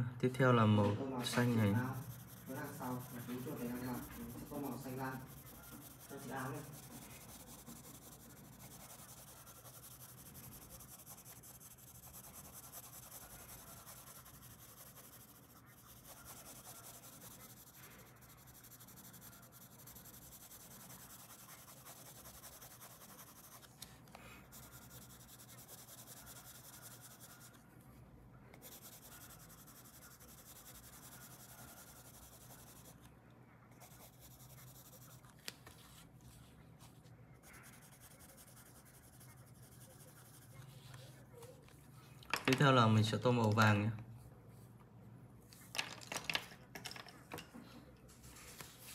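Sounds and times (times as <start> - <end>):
pencil scratching on paper: 1.2 - 27.6, 28.6 - 33.1, 33.8 - 36.0, 36.8 - 41.5.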